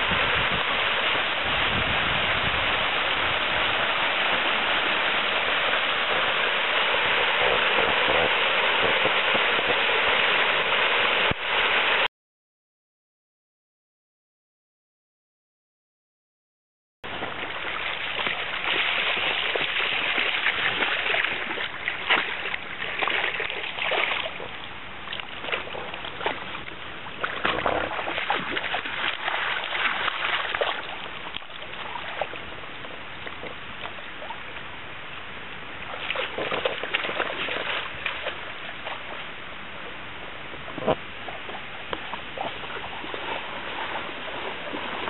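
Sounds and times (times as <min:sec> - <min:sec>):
flowing river water: 0:00.0 - 0:12.1, 0:17.0 - 0:45.0
dog splashing in water: 0:17.2 - 0:32.5, 0:35.9 - 0:39.2, 0:40.8 - 0:45.0.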